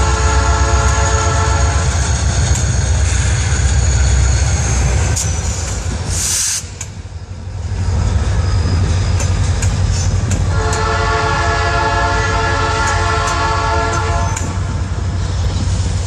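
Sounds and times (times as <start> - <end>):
locomotive air horn chord: 0.0 - 2.0, 10.5 - 14.3
short hiss: 6.1 - 6.9.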